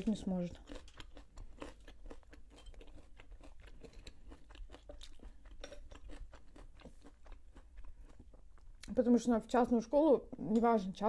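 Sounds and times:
person chewing crunchy food: 0.0s - 8.9s.

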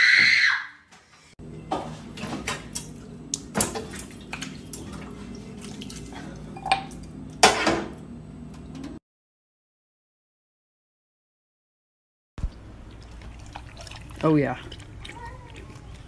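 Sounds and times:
glass bowl clinking on counter: 6.6s - 6.9s.

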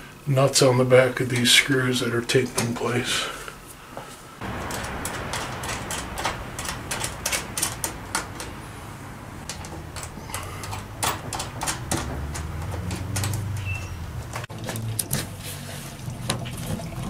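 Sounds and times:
low steady hum: 4.4s - 16.2s
small metal clicks: 9.5s - 15.2s.

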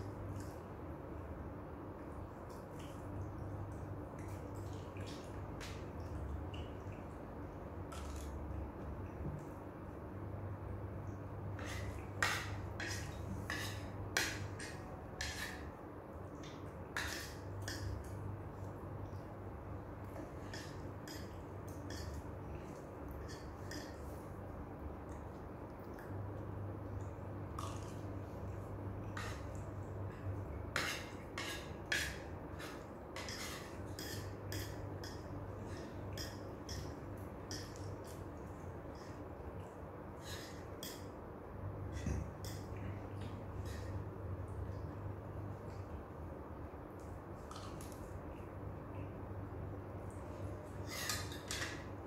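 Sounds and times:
low steady hum: 0.0s - 52.0s
cutlery scraping a plate: 11.6s - 15.8s, 16.9s - 18.2s, 20.4s - 22.3s, 30.7s - 38.2s, 50.8s - 51.9s.

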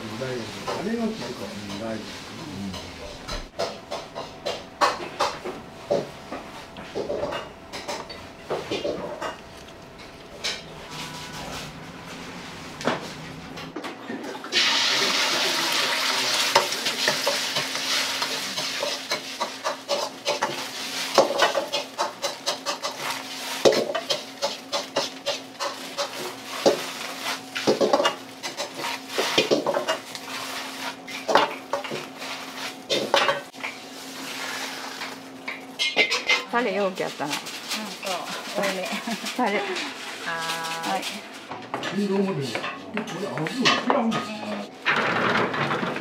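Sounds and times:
low hum: 6.3s - 13.8s
metal ladle scraping wok: 10.3s - 13.6s
egg sizzling in hot oil: 14.4s - 36.4s.

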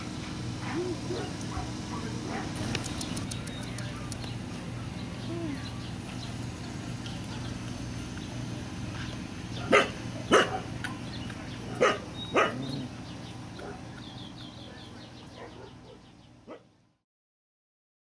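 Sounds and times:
puppies barking: 0.6s - 5.0s, 7.0s - 16.7s.

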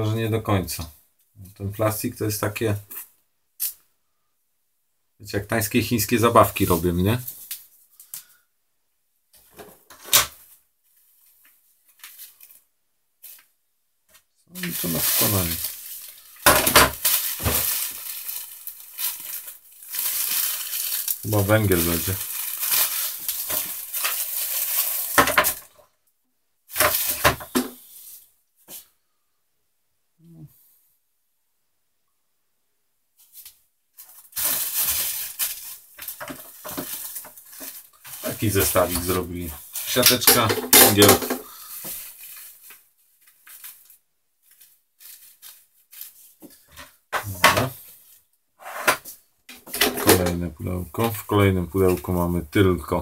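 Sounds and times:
plastic bags crinkling: 14.6s - 25.8s, 26.7s - 27.7s, 34.0s - 48.2s
plastic parts clattering: 14.6s - 25.8s, 26.7s - 27.8s, 34.0s - 39.2s, 39.8s - 43.9s, 48.9s - 50.4s.

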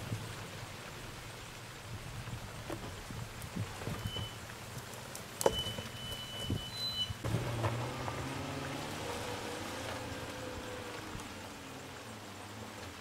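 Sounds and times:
stones crackling under tyres: 1.9s - 8.9s
suv engine under load: 5.4s - 13.0s.

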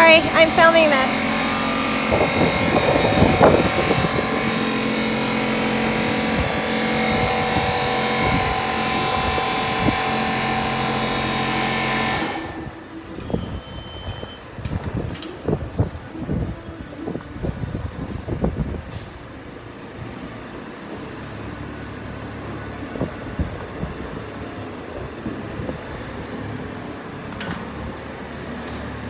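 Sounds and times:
diesel engine running under load: 0.0s - 29.0s.

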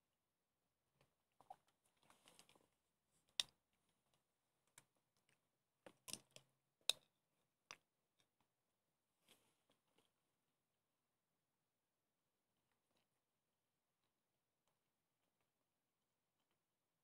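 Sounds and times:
soft rustle: 1.8s - 3.4s.

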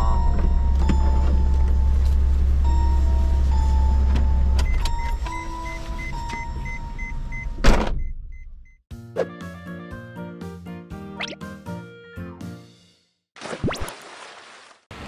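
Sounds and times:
car engine rumble: 0.0s - 8.6s.

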